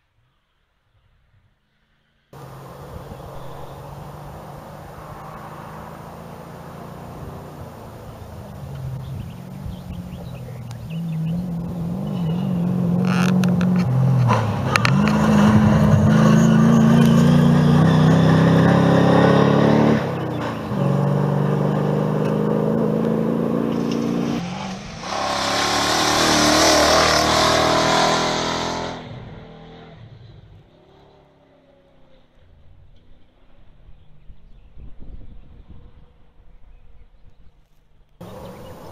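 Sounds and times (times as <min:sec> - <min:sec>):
tyres on gravel rushing past: 0:02.4 - 0:29.2, 0:38.2 - 0:38.9
rally car engines revving: 0:02.4 - 0:34.0, 0:38.2 - 0:38.9.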